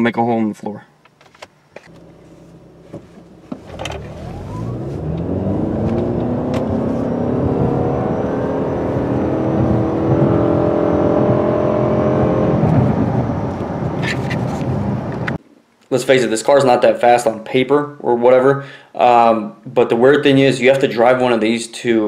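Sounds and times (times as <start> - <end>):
car engine at full throttle: 1.9 - 15.4.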